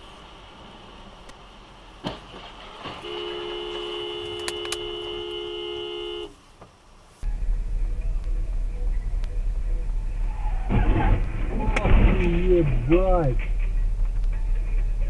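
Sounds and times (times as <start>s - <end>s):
road noise: 0.0s - 15.0s
car horn blaring: 2.9s - 6.4s
loud low rumble: 7.2s - 15.0s.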